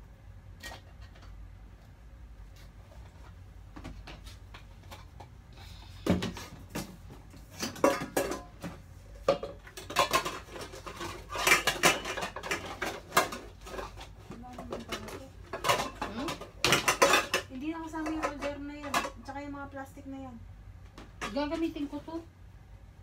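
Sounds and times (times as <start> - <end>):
dishes clinking and clattering: 7.5 - 19.3.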